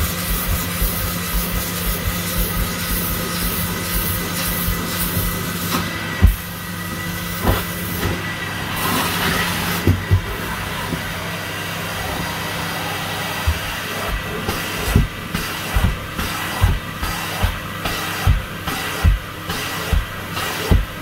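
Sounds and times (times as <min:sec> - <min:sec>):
carpet extraction machine hissing: 0:00.0 - 0:21.0.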